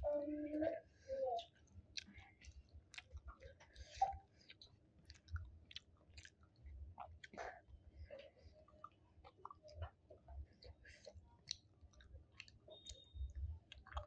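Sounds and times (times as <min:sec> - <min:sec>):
person chewing food: 0:01.4 - 0:14.0
wet mouth clicks and smacks: 0:01.9 - 0:07.5, 0:10.6 - 0:14.0.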